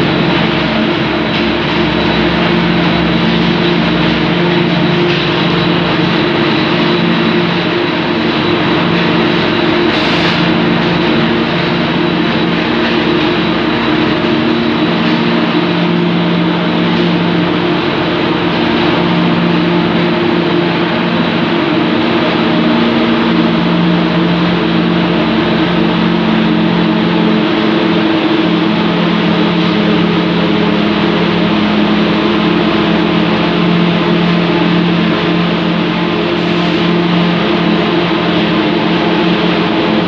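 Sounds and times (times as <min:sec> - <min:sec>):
production line machine drone: 0:00.0 - 0:40.0.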